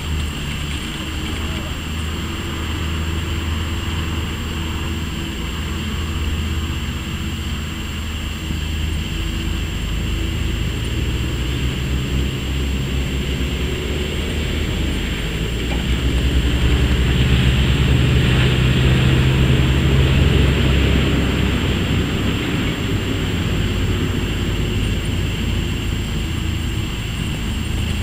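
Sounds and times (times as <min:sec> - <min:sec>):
wind buffeting microphone: 0:08.9 - 0:28.0.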